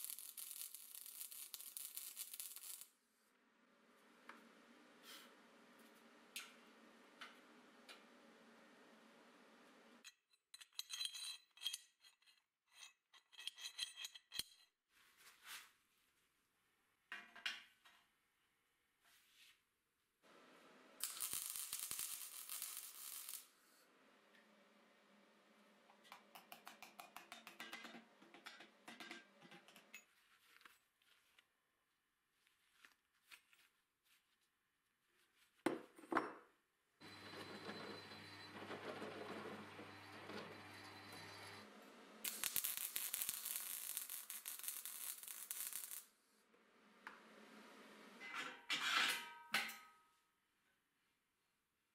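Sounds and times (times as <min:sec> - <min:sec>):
steel parts clinking and scraping: 0:10.0 - 0:14.7, 0:42.2 - 0:46.1.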